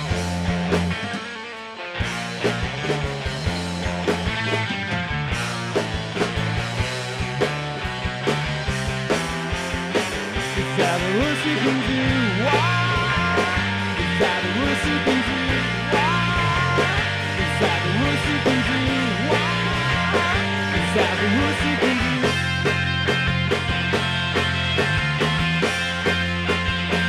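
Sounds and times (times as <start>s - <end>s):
bass guitar: 0.0s - 27.0s
drum kit: 0.0s - 27.0s
electric guitars: 0.0s - 27.0s
man singing into microphone: 10.8s - 22.4s.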